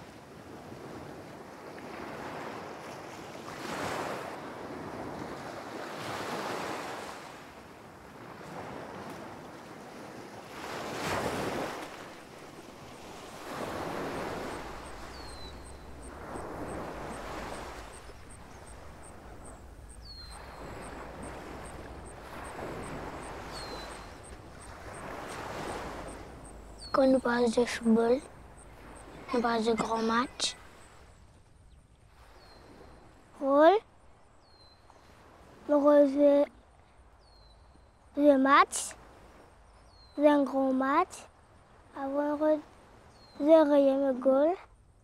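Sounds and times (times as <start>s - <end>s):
sea waves breaking on shore: 0.0s - 31.3s, 32.1s - 33.6s, 34.8s - 37.2s, 38.2s - 39.6s
wind: 0.0s - 45.0s
faint fast high ticking: 14.0s - 29.3s.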